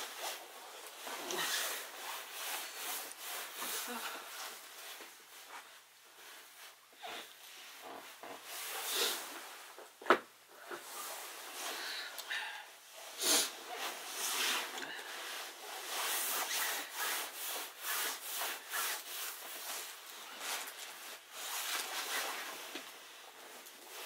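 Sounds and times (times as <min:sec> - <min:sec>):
close rustling and scraping: 0:13.5 - 0:24.0.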